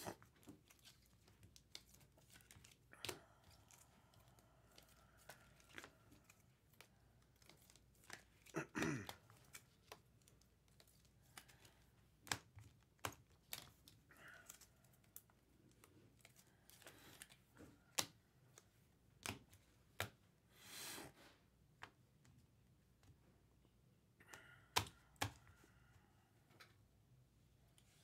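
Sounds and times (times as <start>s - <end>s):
card packs crinkling: 0.0s - 20.1s
cards being handled: 0.0s - 20.7s, 24.3s - 25.6s.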